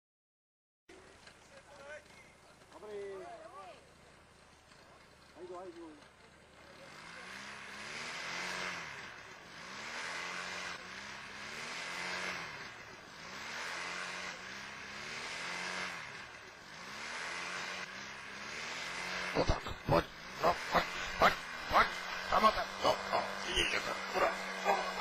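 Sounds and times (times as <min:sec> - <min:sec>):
paraglider engine and propeller: 0:00.9 - 0:07.8, 0:15.6 - 0:16.6.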